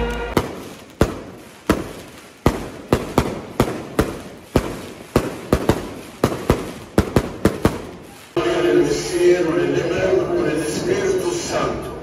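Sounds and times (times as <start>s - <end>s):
fireworks bangs with echo: 0.0s - 12.0s.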